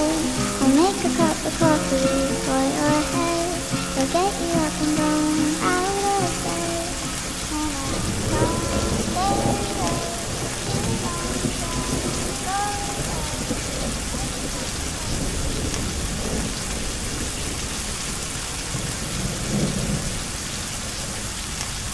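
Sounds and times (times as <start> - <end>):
sliding song notes: 0.0 - 14.2
steady rain: 0.0 - 21.9
rolls of thunder: 7.8 - 20.2.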